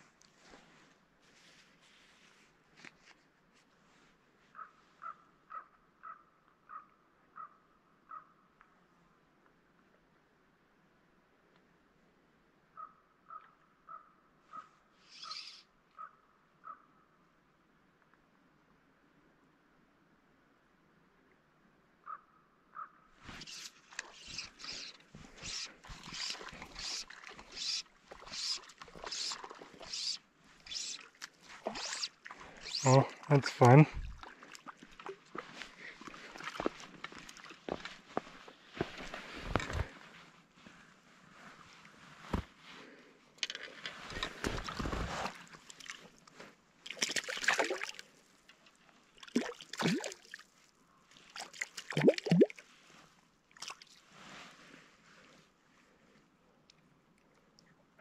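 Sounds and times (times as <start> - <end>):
fly line hissing through guides: 15.1 - 15.6, 23.3 - 33.1
water plops: 46.9 - 48.0, 49.2 - 50.4, 51.4 - 52.6
hand splashing in shallow water: 51.4 - 52.6.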